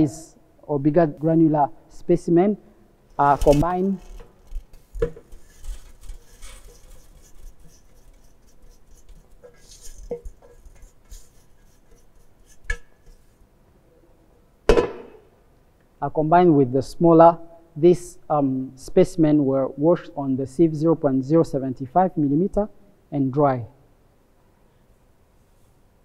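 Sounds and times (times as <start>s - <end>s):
metal sieves clinking and scraping: 3.2s - 13.3s.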